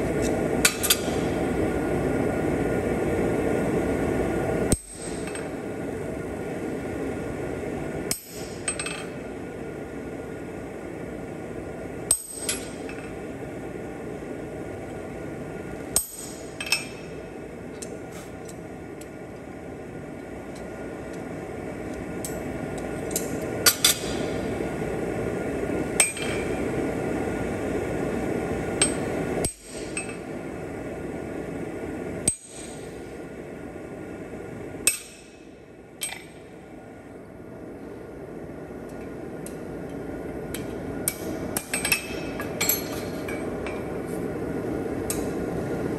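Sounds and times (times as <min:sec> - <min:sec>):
hammer striking steel on anvil: 0:12.1 - 0:13.1, 0:26.0 - 0:26.5, 0:34.8 - 0:35.4, 0:40.6 - 0:43.8.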